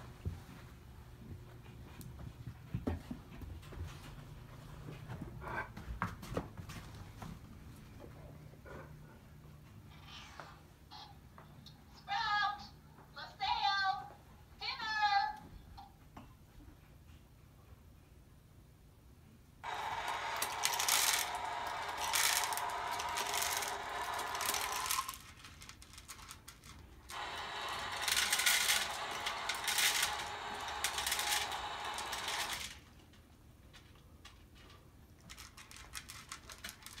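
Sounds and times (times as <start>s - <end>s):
small motor running: 19.6s - 25.2s, 27.1s - 32.8s
kibble rattling into bowl: 35.2s - 37.0s.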